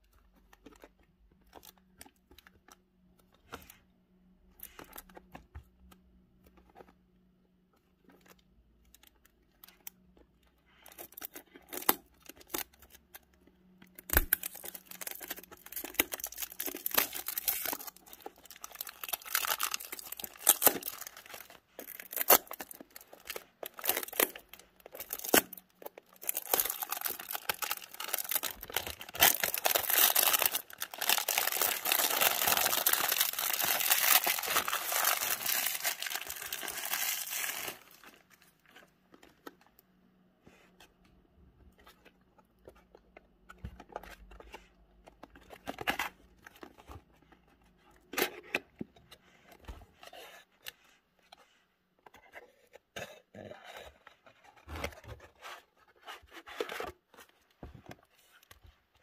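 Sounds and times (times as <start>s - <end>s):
plastic shrink-wrap tearing and crinkling: 14.0s - 38.3s.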